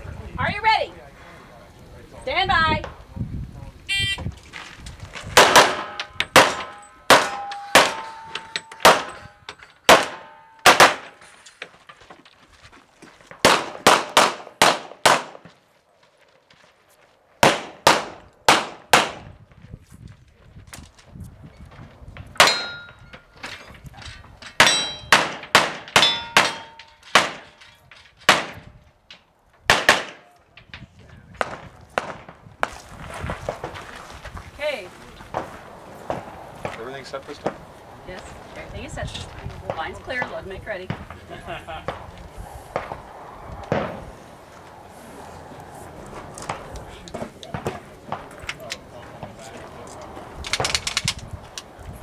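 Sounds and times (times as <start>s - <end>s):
handgun shots: 5.4s - 8.2s, 9.9s - 11.1s
steel targets clanging: 5.4s - 11.9s, 22.4s - 29.3s.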